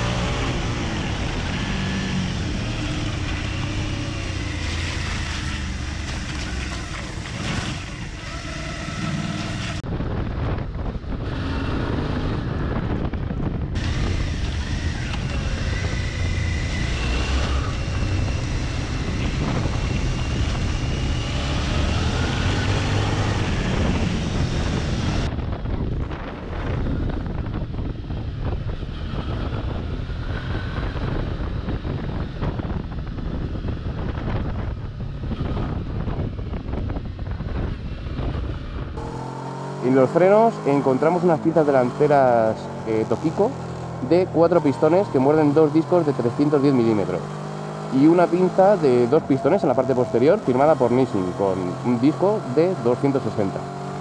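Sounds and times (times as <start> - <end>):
wind buffeting the microphone: 9.4 - 39.0
motorcycle engine running: 12.2 - 45.7.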